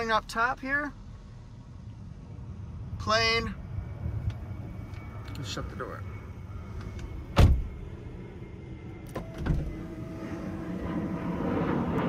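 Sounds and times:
car door slam: 7.4 - 7.7, 9.1 - 9.8.

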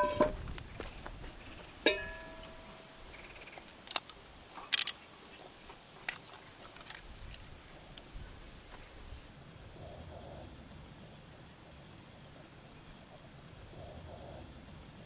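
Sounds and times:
metal pot clank: 0.0 - 0.4, 1.8 - 2.8.

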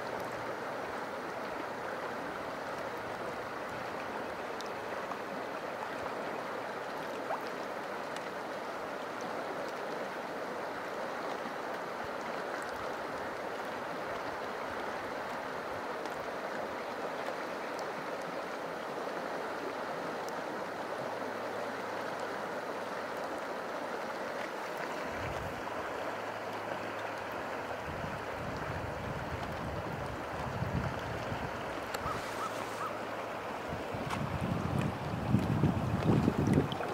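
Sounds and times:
river flowing over rocks: 0.0 - 36.9
wind rumble on microphone: 25.1 - 25.6, 27.8 - 32.4, 33.6 - 36.9.

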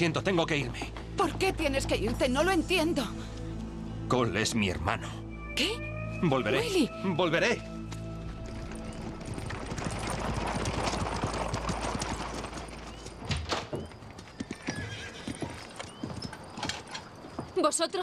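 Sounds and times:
hooves clopping: 0.0 - 3.8, 7.6 - 18.0
wooden wheels rolling: 8.2 - 18.0.

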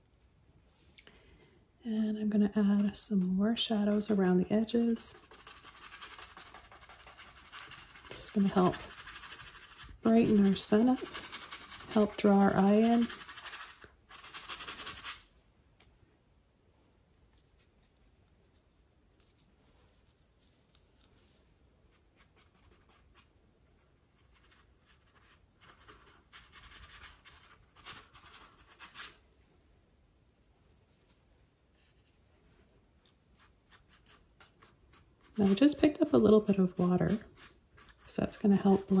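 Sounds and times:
paintbrush scratching on canvas: 2.3 - 15.3, 30.4 - 39.0.

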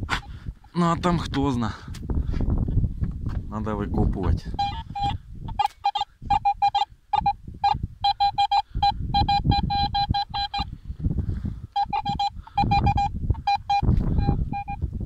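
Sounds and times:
metal detector beeping: 4.5 - 10.7, 11.7 - 14.9.

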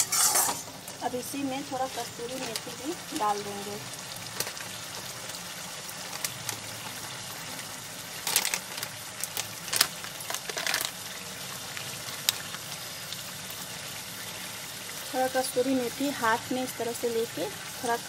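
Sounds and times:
sauce bubbling and sizzling in oil: 0.0 - 18.0.

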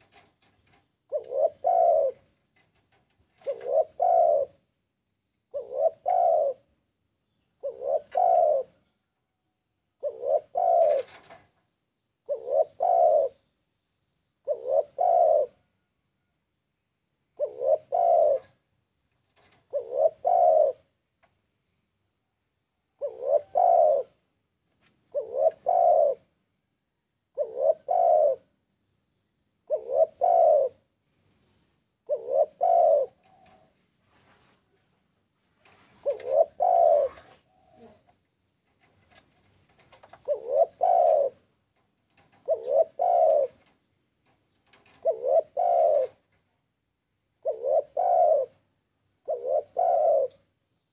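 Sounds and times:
dove cooing: 0.0 - 4.7, 5.5 - 6.7, 7.6 - 8.9, 10.0 - 11.4, 12.2 - 13.4, 14.4 - 15.7, 17.3 - 18.7, 19.3 - 21.0, 23.0 - 24.3, 25.0 - 26.4, 27.3 - 28.6, 29.6 - 30.9, 32.0 - 34.5, 35.6 - 43.8, 44.6 - 46.4, 47.4 - 50.6.

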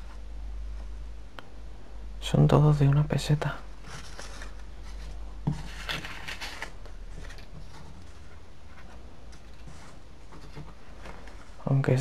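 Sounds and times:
low steady hum: 0.0 - 12.0
paper banknotes rustling: 3.8 - 8.3.

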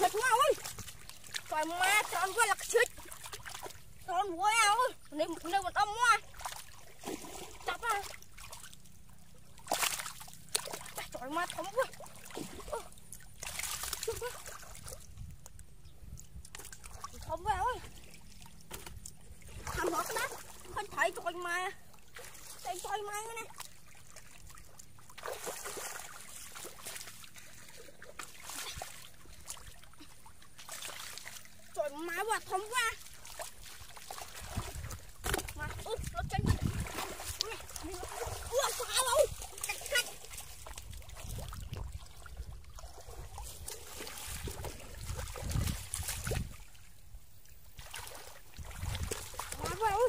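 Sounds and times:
feet splashing in shallow water: 0.0 - 50.0
hands splashing in shallow water: 9.6 - 11.1, 47.8 - 49.8.

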